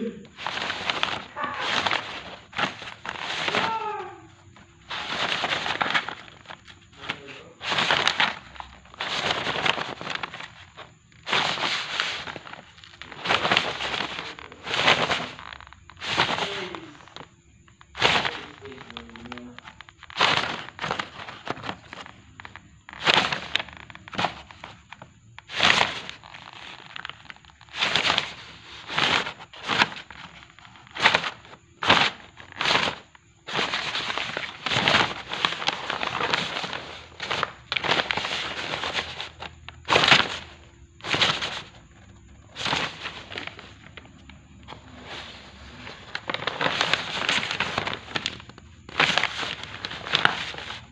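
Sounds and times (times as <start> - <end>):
paper crinkling and rustling: 0.3 - 50.9.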